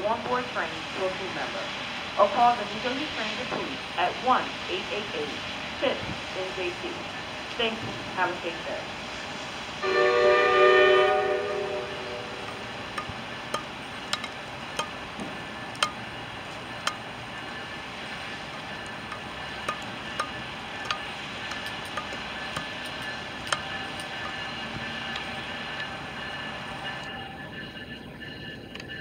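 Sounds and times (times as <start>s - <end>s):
steady background noise: 0.0s - 29.0s
train horn blast: 9.8s - 13.1s.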